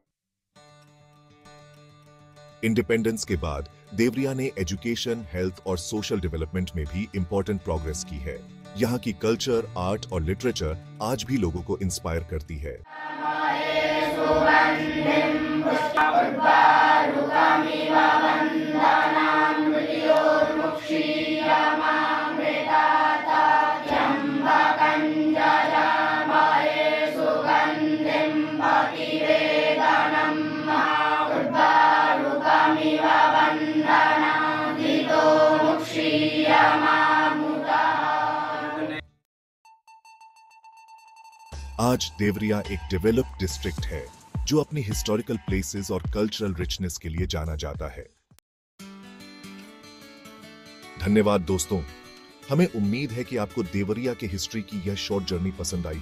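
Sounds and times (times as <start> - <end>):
boys chanting in unison: 12.9 - 39.0.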